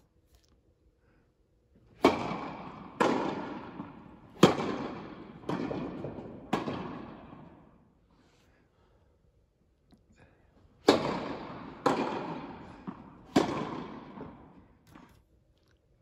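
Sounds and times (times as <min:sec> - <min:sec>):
tennis ball struck echoing: 0:02.0 - 0:07.8, 0:10.8 - 0:15.1.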